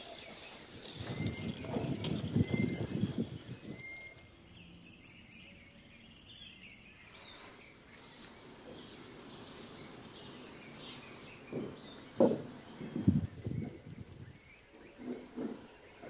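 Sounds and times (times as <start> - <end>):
birds chirping faintly: 0.0 - 16.0
short low knocks: 11.5 - 13.8.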